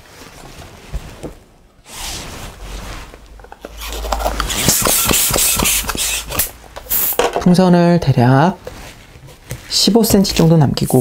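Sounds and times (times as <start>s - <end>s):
rubber squeaking and rubbing: 1.8s - 7.1s
hiss of pumped air: 4.5s - 7.2s.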